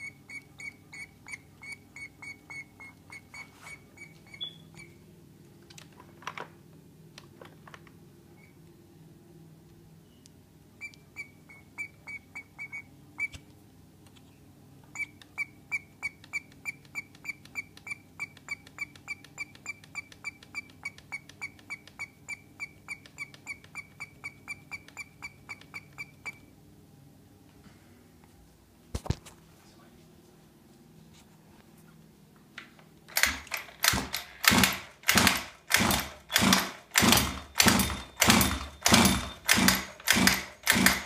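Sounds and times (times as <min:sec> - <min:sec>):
primer bulb squeaking: 0:00.0 - 0:05.0, 0:10.8 - 0:13.4, 0:15.0 - 0:26.5.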